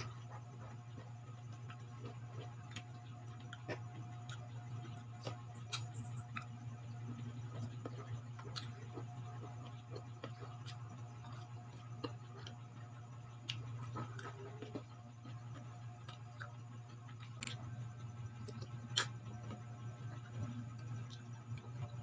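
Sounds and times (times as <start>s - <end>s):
chewing: 0.0s - 22.0s
steady low hum: 0.0s - 22.0s
fork and teeth crunching fruit: 13.4s - 19.7s.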